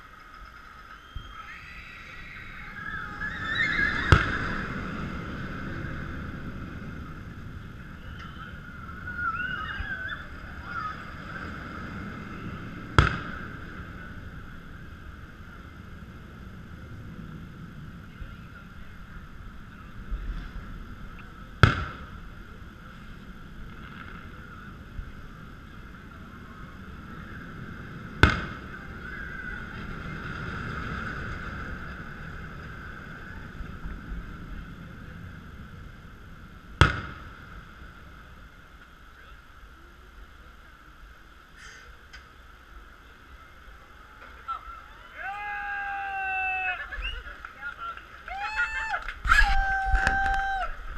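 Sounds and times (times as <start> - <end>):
steady background hum: 0.0 - 50.9
firework bangs with echo: 13.0 - 13.6, 21.6 - 22.1, 28.2 - 28.7, 36.8 - 37.4.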